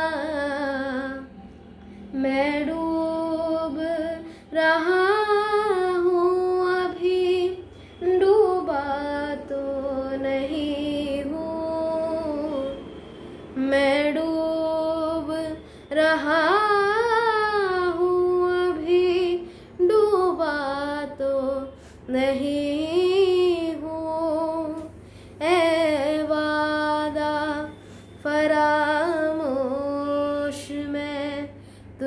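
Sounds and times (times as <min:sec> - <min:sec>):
singer breathing: 0:04.2 - 0:04.5, 0:19.4 - 0:19.8, 0:21.8 - 0:22.1, 0:25.0 - 0:25.4, 0:27.8 - 0:28.2, 0:31.5 - 0:32.0.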